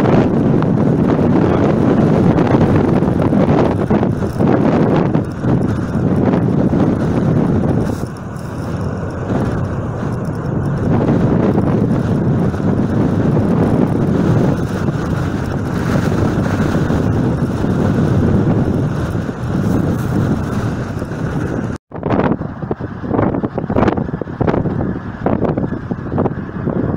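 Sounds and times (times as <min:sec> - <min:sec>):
airliner jet engines: 0:00.0 - 0:26.9
wind buffeting microphone: 0:00.0 - 0:26.9.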